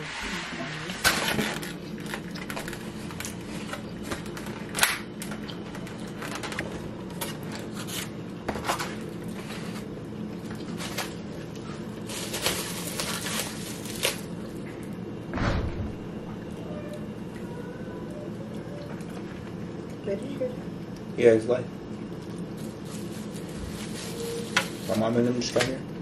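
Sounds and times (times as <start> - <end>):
steady low hum: 0.0 - 26.0
plastic packaging crinkling: 1.2 - 14.6, 22.2 - 25.6.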